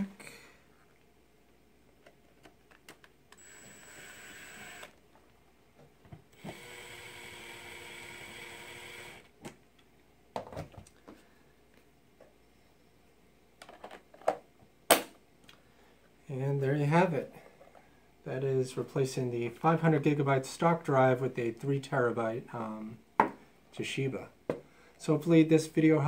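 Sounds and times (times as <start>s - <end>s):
electric screwdriver running: 3.4s - 5.0s, 6.4s - 9.3s.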